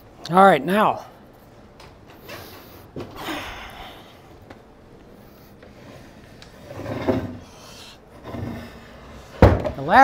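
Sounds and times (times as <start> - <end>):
wooden chair scraping and creaking: 5.7 - 7.5, 8.2 - 9.6.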